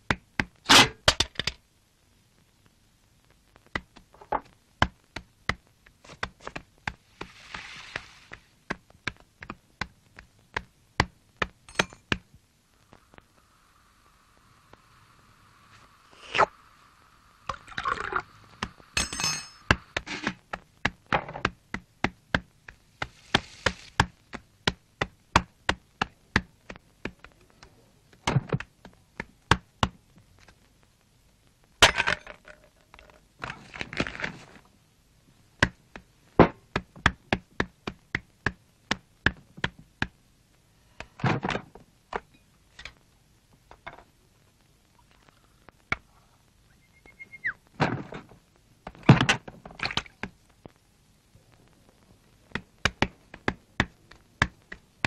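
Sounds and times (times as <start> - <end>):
crockery clinking: 11.7 - 12.0, 19.0 - 19.7.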